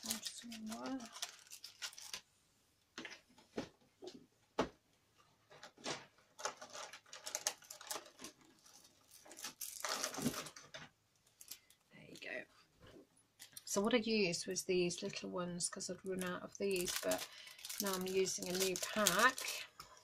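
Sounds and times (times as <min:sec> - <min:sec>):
packaging rustling: 0:00.0 - 0:02.3, 0:05.5 - 0:11.8, 0:16.2 - 0:20.0.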